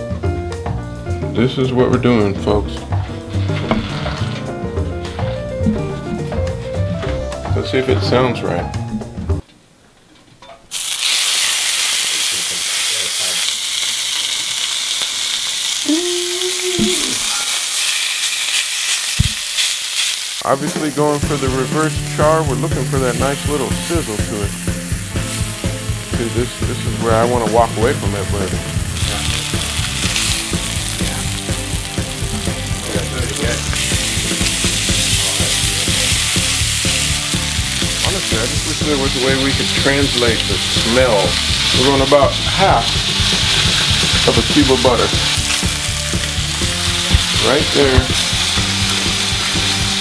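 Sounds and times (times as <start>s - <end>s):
background music: 0.0s - 9.5s, 20.4s - 50.0s
steaks sizzling in oil: 10.7s - 50.0s.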